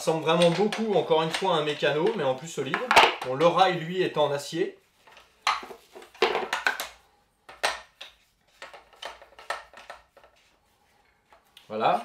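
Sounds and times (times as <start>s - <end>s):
plastic and steel parts clacking: 5.0s - 10.4s.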